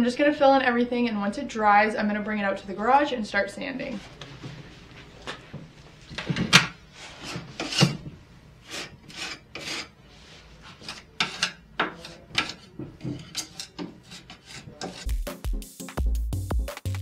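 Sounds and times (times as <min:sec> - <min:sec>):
knife scraping filler on wood: 0:07.0 - 0:15.1.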